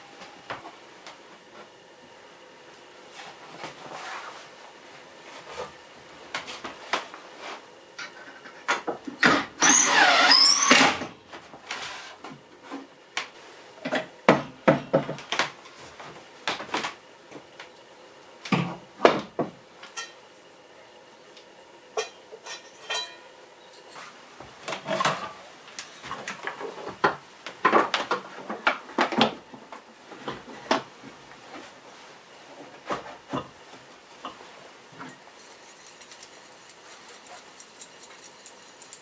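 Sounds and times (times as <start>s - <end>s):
loud squeaky scrape: 9.6s - 11.0s
knocks on wooden shelves: 14.3s - 15.3s.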